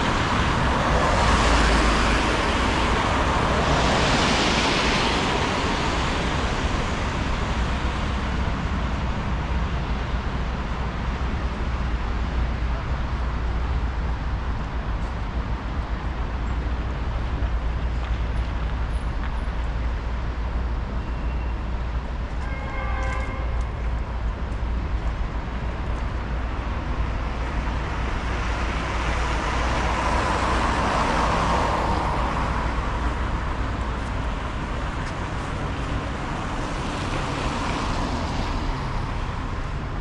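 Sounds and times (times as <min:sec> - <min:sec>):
city traffic rumble: 0:00.0 - 0:40.0
brief tone: 0:21.0 - 0:21.6.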